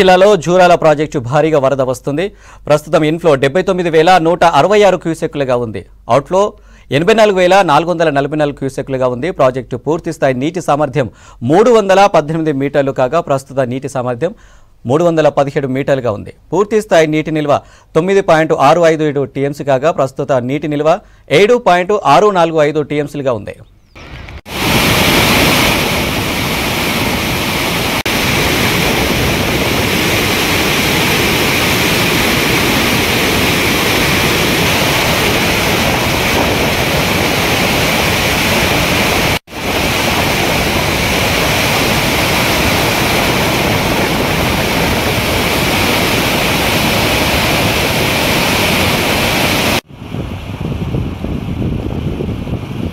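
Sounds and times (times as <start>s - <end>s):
water rushing through spillway: 24.1s - 49.9s.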